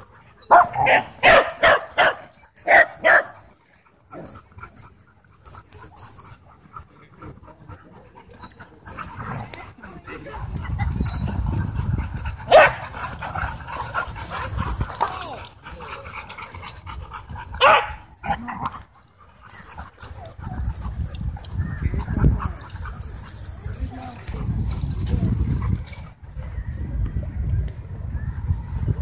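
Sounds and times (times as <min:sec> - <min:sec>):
dogs barking: 0:00.4 - 0:03.5, 0:12.4 - 0:15.2, 0:17.6 - 0:18.7.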